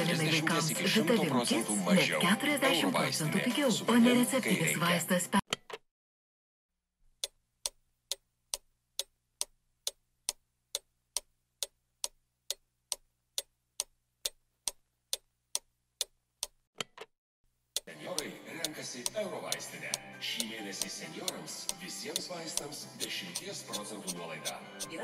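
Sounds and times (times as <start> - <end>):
clock ticking: 7.1 - 16.6, 17.7 - 25.0.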